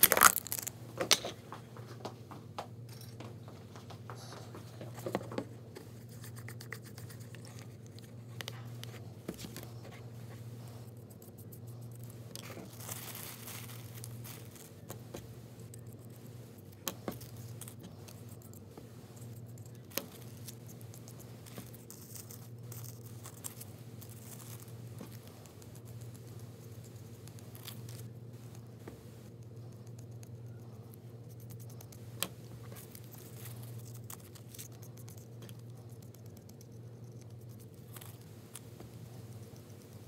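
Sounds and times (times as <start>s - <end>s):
steady low hum: 0.0s - 40.0s
tissue paper rustling: 12.4s - 14.8s.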